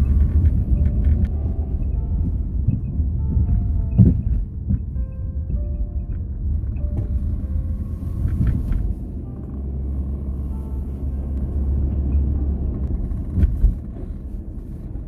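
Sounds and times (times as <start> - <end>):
car engine and tyre rumble: 0.0 - 15.0
short knocks in car cabin: 3.9 - 4.9.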